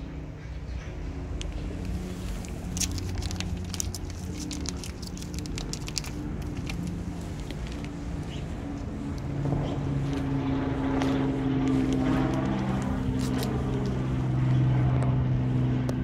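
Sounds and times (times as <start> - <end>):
low motor drone: 0.0 - 16.0
foil pouch crinkling: 1.7 - 8.8, 11.0 - 14.2
cat chewing and licking: 1.8 - 9.3, 10.9 - 14.2.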